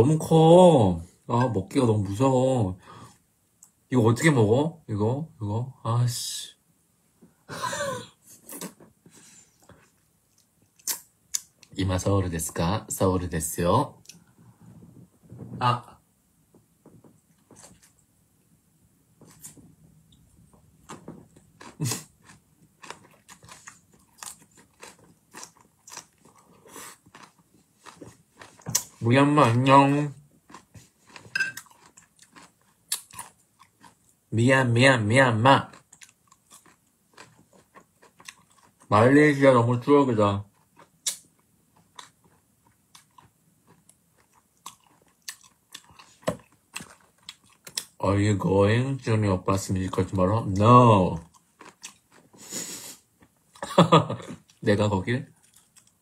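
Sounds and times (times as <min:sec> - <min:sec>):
chewing crunchy chicken: 0:20.8 - 0:34.2, 0:35.6 - 0:39.0, 0:40.4 - 0:48.0, 0:50.4 - 0:52.5, 0:55.3 - 0:56.0.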